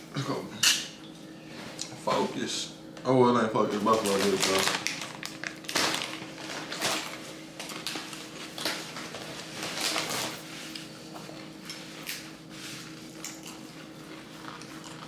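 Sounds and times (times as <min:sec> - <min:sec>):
faint hum: 0:00.0 - 0:15.0
chewing crisp chips: 0:13.2 - 0:15.0.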